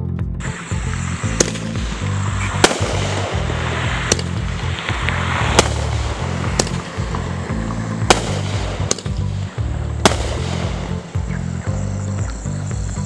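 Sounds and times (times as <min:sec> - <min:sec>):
music with heavy bass beat: 0:00.0 - 0:13.0
fireworks bangs: 0:00.5 - 0:09.4, 0:10.0 - 0:11.3.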